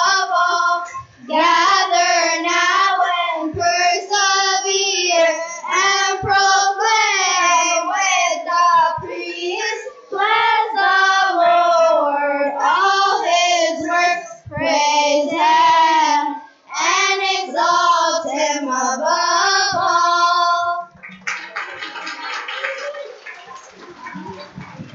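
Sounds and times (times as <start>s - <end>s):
children's choir singing: 0.0s - 20.9s
people clapping: 20.9s - 24.9s.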